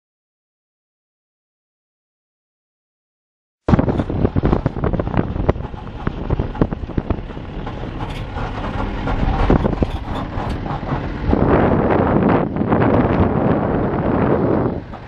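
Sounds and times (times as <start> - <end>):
bodywork knocking and rattling: 3.7 - 11.4
vehicle engine rumbling: 3.7 - 15.0.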